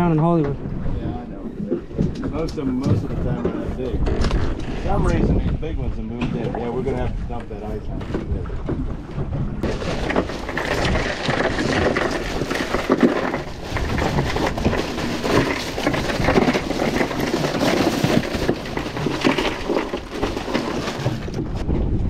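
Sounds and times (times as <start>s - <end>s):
crushed ice rattling: 9.6s - 21.6s
plastic bag crinkling: 9.6s - 21.6s.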